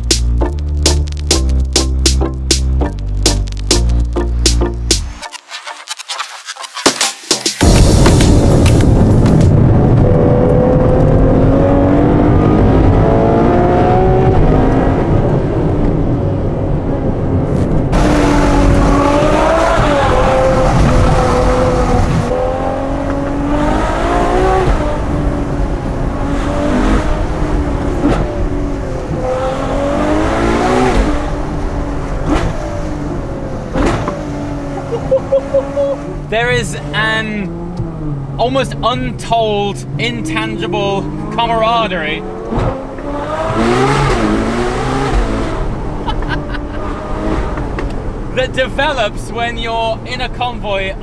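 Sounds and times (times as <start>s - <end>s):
car engine revving in cabin: 9.5s - 48.4s.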